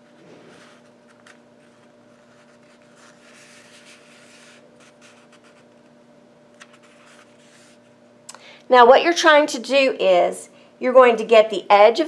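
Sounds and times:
paper rustling and scraping: 0.0s - 5.9s, 6.6s - 7.9s
steady low hum: 0.0s - 12.0s.

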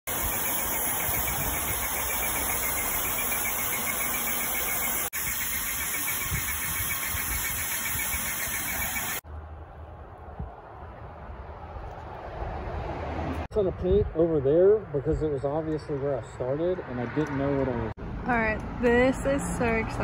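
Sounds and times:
hiss of spraying paint: 0.1s - 9.2s
paint sprayer pump motor: 0.1s - 9.2s.

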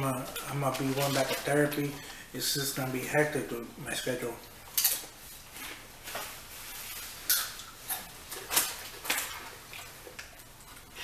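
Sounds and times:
chip bag crinkling: 0.2s - 2.2s.

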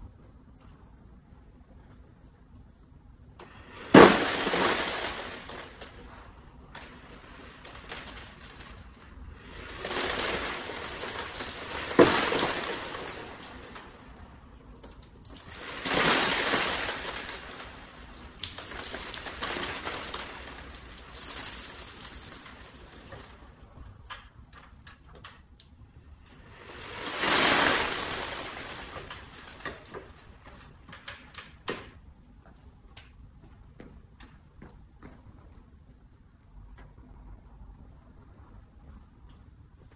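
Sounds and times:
water splashing and trickling: 7.1s - 30.4s.

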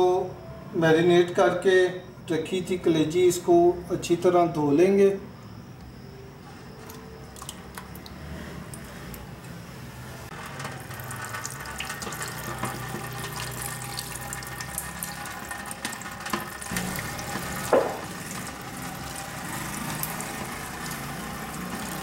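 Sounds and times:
tap water running into sink: 10.3s - 22.0s
sharp knock: 17.7s - 18.1s.

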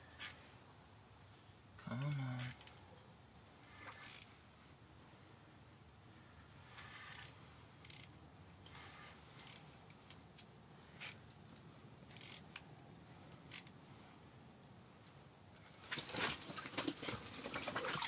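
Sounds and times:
fishing reel clicking and rasping: 2.0s - 2.8s, 3.8s - 4.3s, 6.8s - 8.2s, 9.4s - 10.2s, 12.1s - 12.6s, 13.5s - 13.8s.

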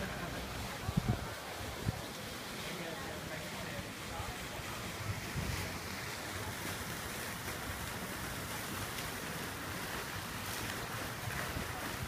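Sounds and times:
steady outdoor hiss: 0.0s - 12.0s
wind rumbling on microphone: 0.7s - 2.2s, 4.9s - 6.6s.

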